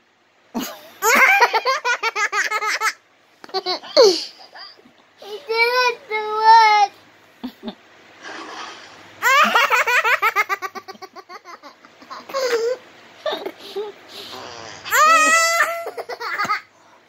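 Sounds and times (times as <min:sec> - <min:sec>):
young child laughing: 0:00.6 - 0:05.5, 0:09.2 - 0:14.0, 0:14.9 - 0:16.7.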